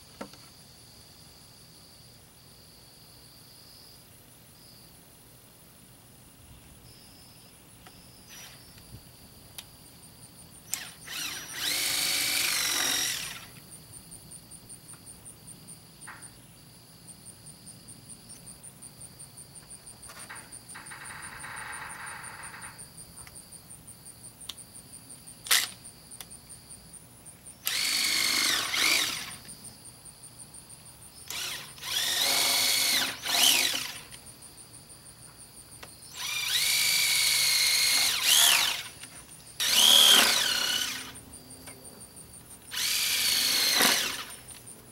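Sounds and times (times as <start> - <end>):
cordless drill whining: 8.3 - 8.6, 10.7 - 13.6, 25.5 - 25.8, 27.6 - 29.5, 31.2 - 34.2, 36.1 - 41.2, 42.7 - 44.6.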